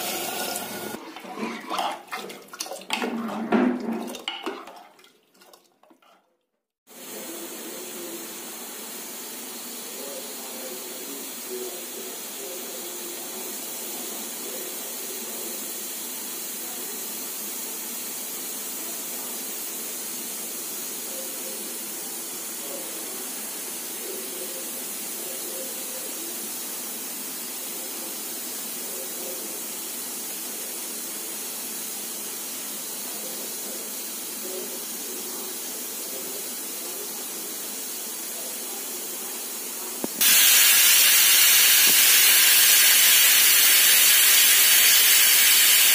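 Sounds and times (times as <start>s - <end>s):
pressure cooker hissing: 0.0s - 1.0s, 6.9s - 45.9s
steam whistle-hiss from valve: 0.0s - 1.0s, 40.2s - 45.9s.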